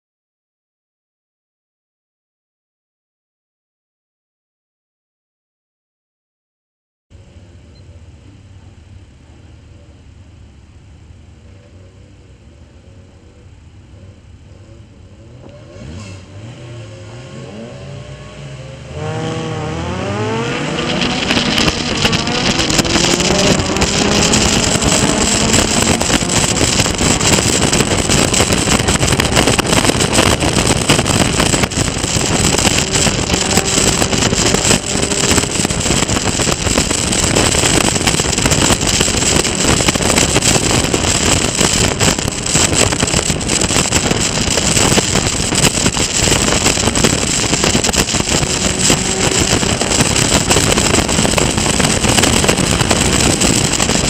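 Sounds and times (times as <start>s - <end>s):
race car engines revving: 11.5s - 54.0s
car accelerating through gears: 14.6s - 54.0s
wind rushing: 17.2s - 54.0s.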